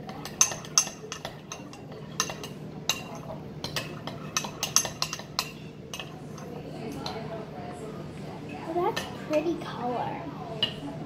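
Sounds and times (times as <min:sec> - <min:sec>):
spoon stirring slime: 0:00.0 - 0:07.4
spoon clinking against glass: 0:00.1 - 0:07.2.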